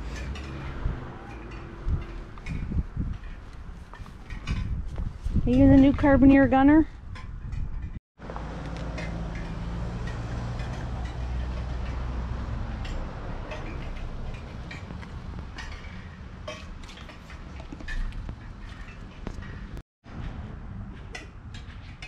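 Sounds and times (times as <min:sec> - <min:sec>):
vehicle engine hum: 0:00.0 - 0:04.2, 0:08.2 - 0:21.5.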